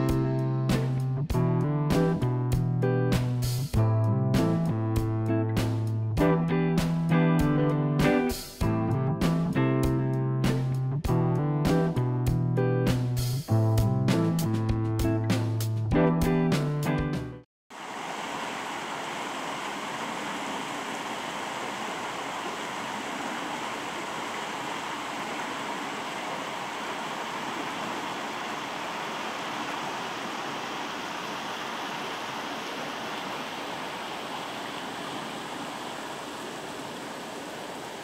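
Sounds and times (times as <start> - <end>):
river water rushing: 17.7 - 38.0.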